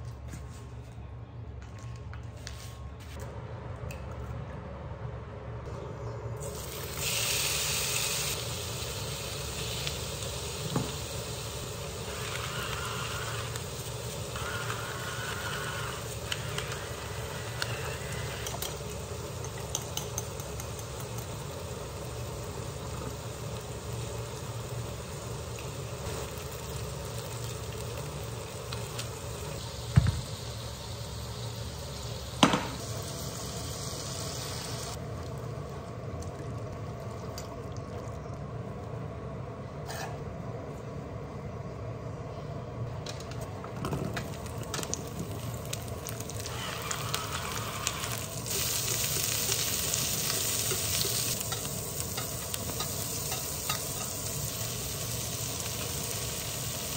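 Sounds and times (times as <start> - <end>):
chicken sizzling in hot oil: 6.4 - 35.0, 45.0 - 56.9.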